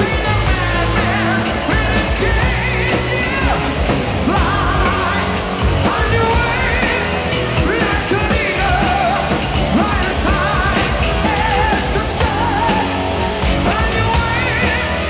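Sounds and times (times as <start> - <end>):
electric guitars and bass: 0.0 - 15.0
male lead vocal: 0.0 - 15.0.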